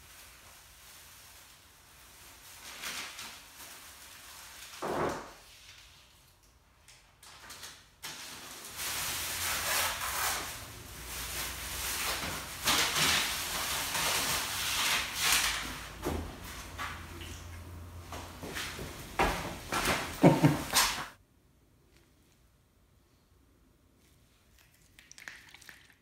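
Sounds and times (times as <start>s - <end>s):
masking paper rustling and crinkling: 0.0s - 6.3s, 7.1s - 21.2s.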